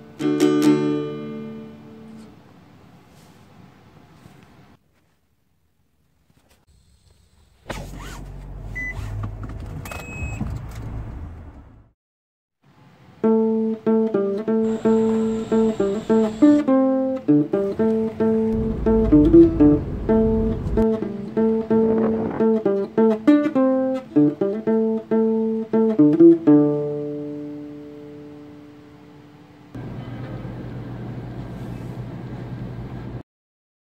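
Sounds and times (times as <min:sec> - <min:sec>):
plucked string music: 0:00.0 - 0:02.3, 0:13.2 - 0:28.9.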